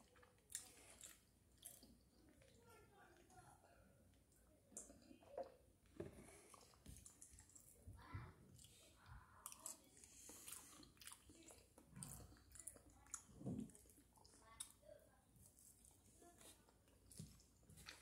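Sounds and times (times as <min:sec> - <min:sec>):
person chewing: 0:00.0 - 0:02.5, 0:06.2 - 0:07.7, 0:09.4 - 0:13.4.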